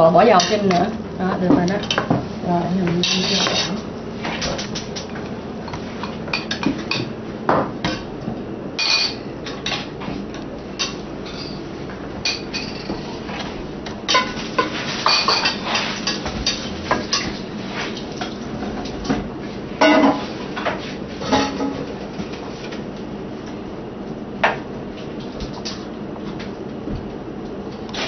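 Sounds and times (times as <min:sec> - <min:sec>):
dishes and utensils clattering: 0:03.0 - 0:03.8, 0:05.7 - 0:08.1, 0:08.8 - 0:09.9, 0:12.2 - 0:13.5, 0:14.1 - 0:19.2, 0:19.8 - 0:22.0.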